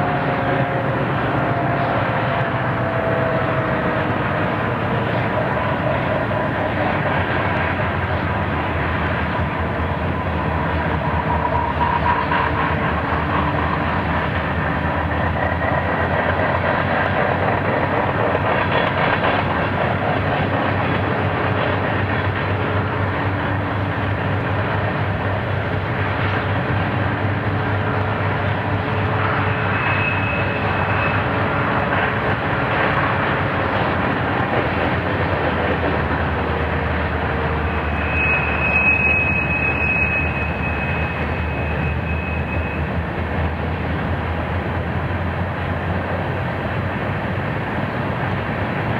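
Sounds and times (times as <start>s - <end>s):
locomotive engine drone: 0.0s - 48.9s
train rumble: 0.0s - 48.9s
thin high squeal: 29.4s - 31.3s, 37.6s - 42.9s.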